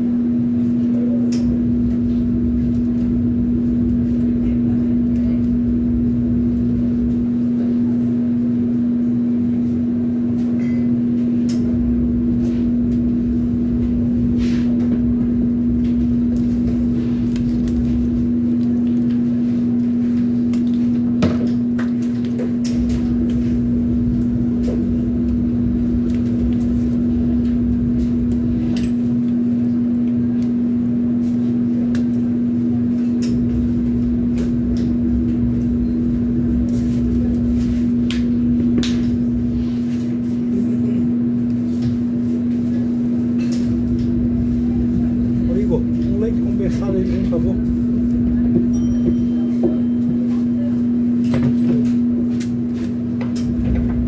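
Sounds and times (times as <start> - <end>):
electric motor hum: 11.4 - 54.0.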